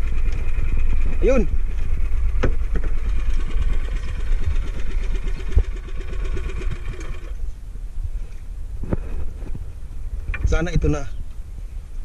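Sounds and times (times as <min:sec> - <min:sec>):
boat engine chugging: 0:00.0 - 0:07.4
water noise: 0:00.0 - 0:07.8
wind: 0:00.0 - 0:12.0.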